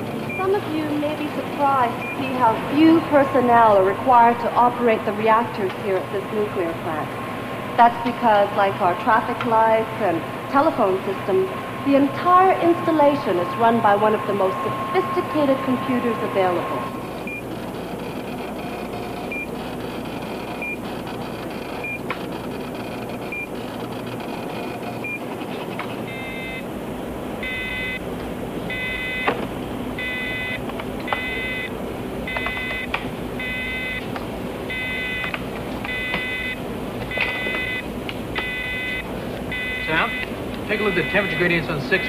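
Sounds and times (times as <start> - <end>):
machine-room hum: 0.0 - 42.0
harsh multi-tone alarm beep: 1.6 - 3.1, 10.5 - 17.5, 19.3 - 19.6, 20.6 - 20.8, 23.3 - 23.6, 26.1 - 26.7, 27.4 - 28.0, 28.7 - 29.3, 30.0 - 31.7, 32.3 - 34.0, 34.7 - 35.3, 35.9 - 42.0.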